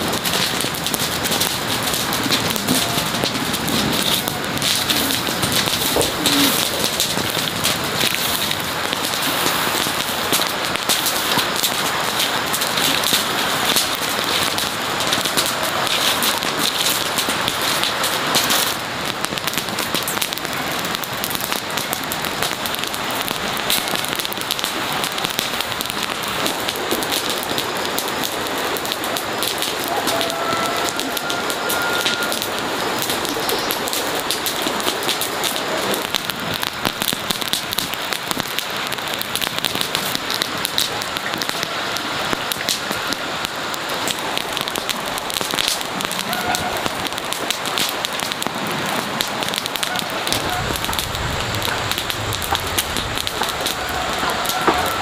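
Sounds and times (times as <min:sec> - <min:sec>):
straw and grass burning crackling: 0:00.0 - 0:55.0.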